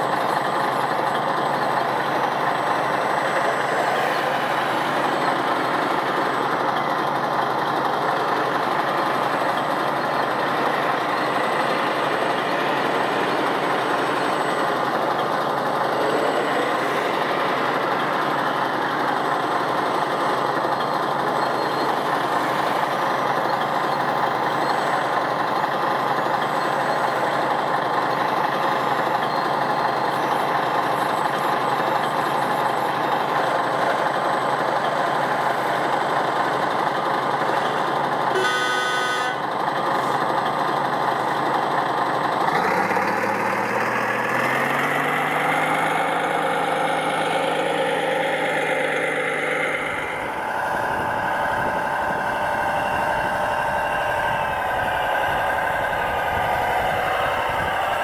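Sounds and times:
short horn beep: 38.3 - 39.4.

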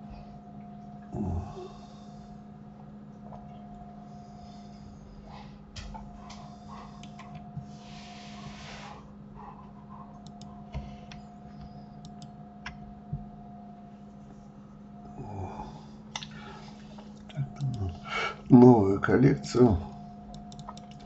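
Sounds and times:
steady electrical hum: 0.0 - 21.0
breath into microphone: 6.4 - 9.1
mouse clicks: 10.2 - 10.5, 12.0 - 12.3, 20.3 - 21.0.

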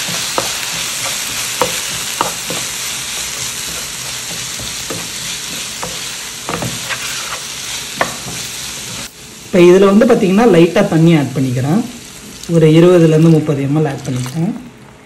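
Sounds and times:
spatula knocking and scraping pan: 0.0 - 9.1
vegetables sizzling in oil: 0.0 - 15.0.

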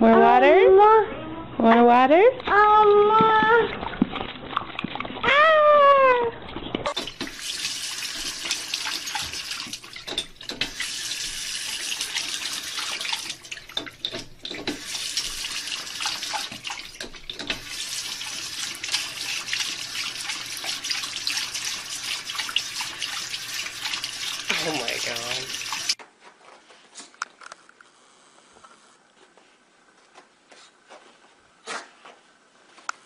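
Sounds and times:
faucet water splashing into sink: 6.9 - 26.0.

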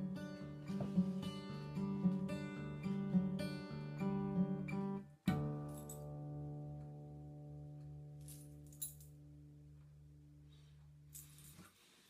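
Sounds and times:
acoustic guitar strumming: 0.0 - 8.6.

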